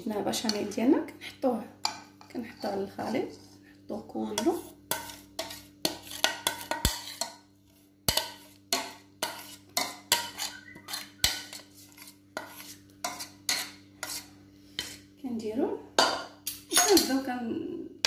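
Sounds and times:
spoon scraping and knocking pot: 4.2 - 15.1, 16.0 - 17.1.

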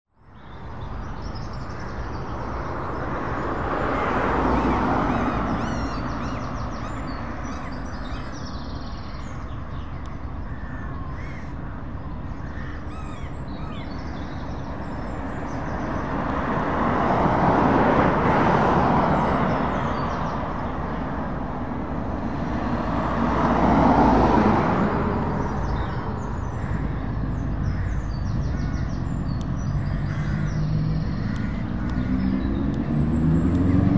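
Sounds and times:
vehicles passing by: 0.2 - 33.9
crows cawing: 10.4 - 13.8, 26.4 - 29.0, 29.8 - 32.2.

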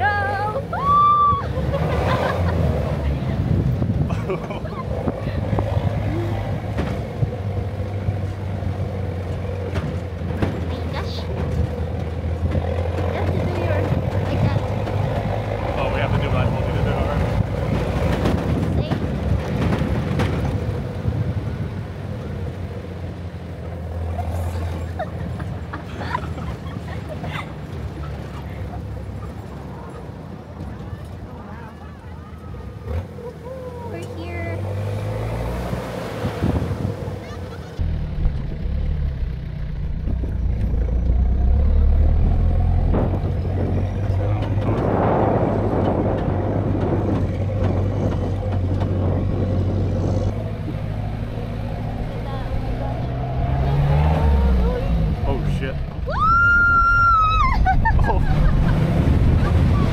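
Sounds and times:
ride noise: 0.0 - 59.9
vehicle engine running on sand: 0.0 - 59.9
faint voices: 26.3 - 34.7.

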